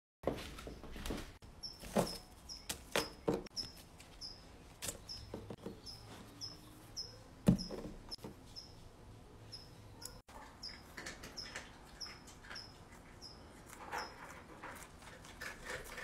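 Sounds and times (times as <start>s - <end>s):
rabbit chewing lettuce: 10.7s - 16.0s.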